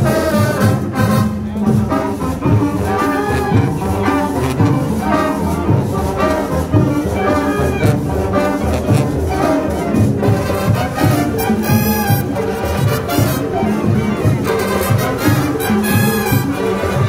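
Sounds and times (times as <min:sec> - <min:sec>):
marching band playing: 0:00.0 - 0:17.0.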